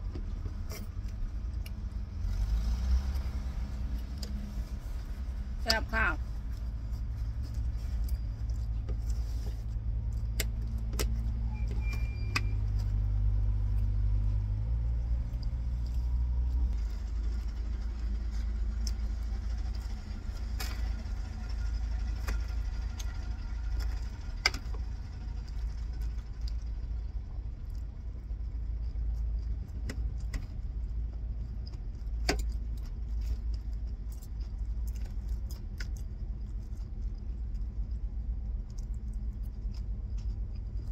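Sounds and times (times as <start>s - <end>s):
low rumble: 0.0s - 40.9s.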